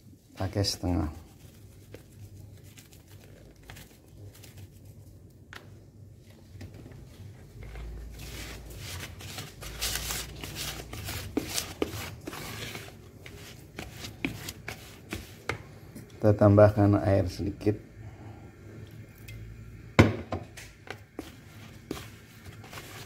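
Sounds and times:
spatula scraping a plastic bowl: 7.5 - 15.6, 20.9 - 23.0.

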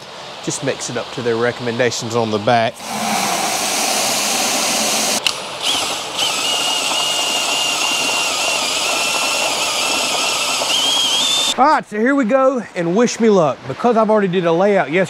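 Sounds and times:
drill whining mixing mortar: 2.8 - 11.6
hose water running into bucket: 2.8 - 11.6.

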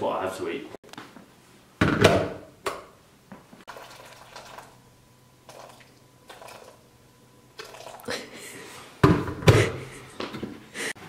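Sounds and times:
water pouring into a bowl: 3.7 - 4.8, 5.4 - 6.9, 7.6 - 8.2.

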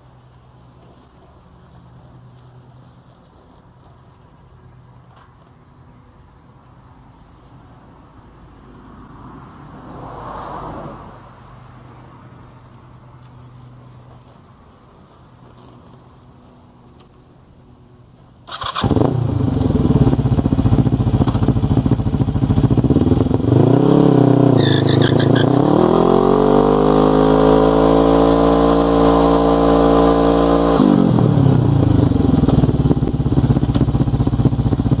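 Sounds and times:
motorcycle engine revving: 18.5 - 35.0
short high squeaks: 24.6 - 25.6.

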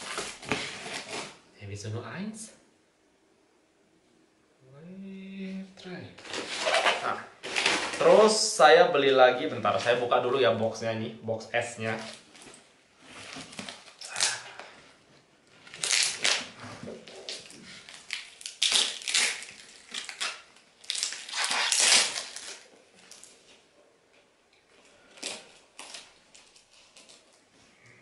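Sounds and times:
plastic wrapping crinkling: 0.0 - 1.4, 6.2 - 10.1, 11.8 - 14.8, 15.5 - 23.7, 24.7 - 27.6.

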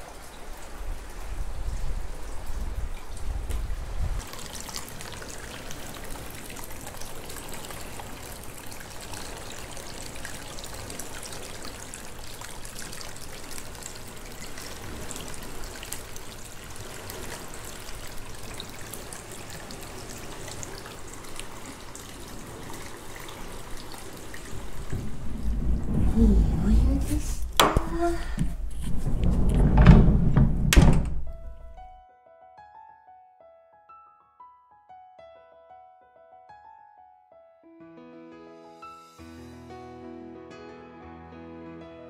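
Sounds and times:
water trickling and splashing: 0.0 - 31.7
low rumble: 24.4 - 31.9.

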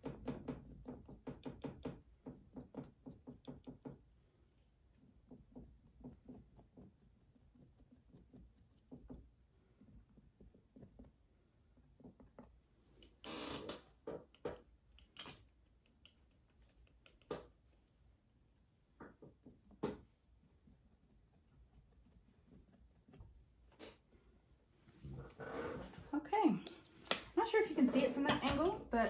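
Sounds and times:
palette knife tapping paint: 0.0 - 4.1, 4.9 - 13.1.

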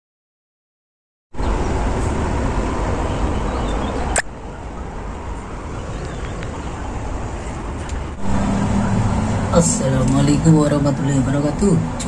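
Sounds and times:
heavy low rumble: 1.4 - 12.0
sharp click: 4.1 - 4.3.

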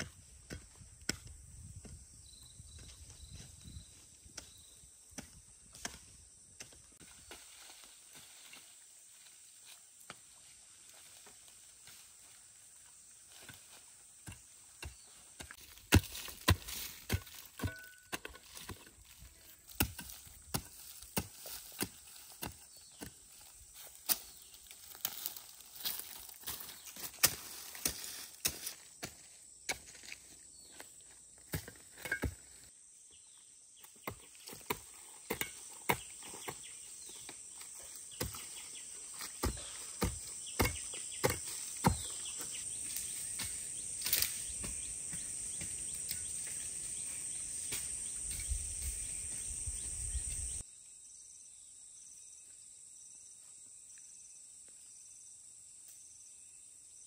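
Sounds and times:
hoe chopping dry soil: 0.0 - 2.0, 4.3 - 7.6, 13.3 - 30.0, 31.4 - 32.7, 33.9 - 46.7
insects droning: 0.0 - 57.0.

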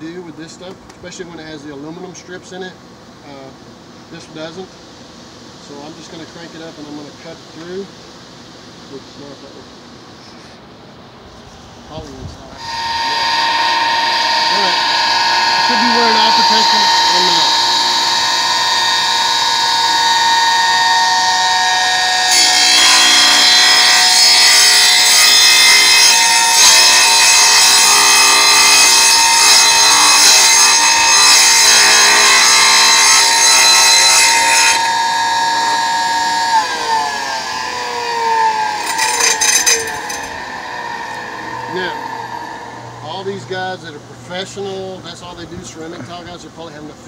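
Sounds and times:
saw blade grinding through tile: 12.6 - 43.0
tile saw motor whining: 12.6 - 43.4.

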